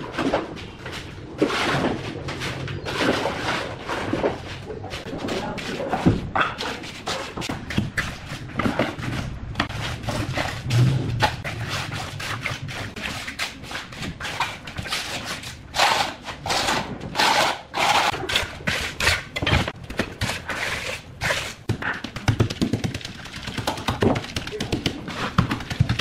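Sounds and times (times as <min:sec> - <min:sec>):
knocks and scrapes: 0:00.0 - 0:26.0
trowel scraping wet concrete: 0:00.1 - 0:22.0.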